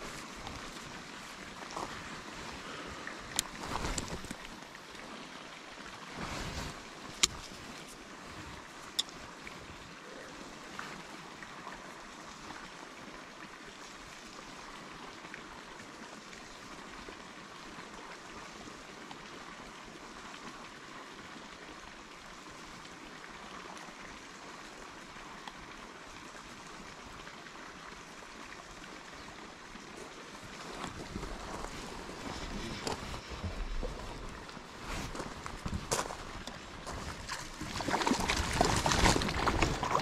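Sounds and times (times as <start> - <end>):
running water hissing: 29.0 - 40.0.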